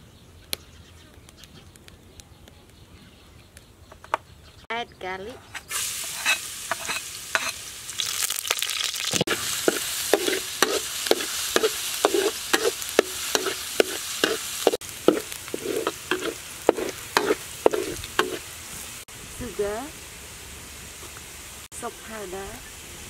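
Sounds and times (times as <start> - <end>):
spatula scraping a wok: 5.5 - 7.6, 9.3 - 18.5
garlic sizzling in oil: 5.6 - 23.0.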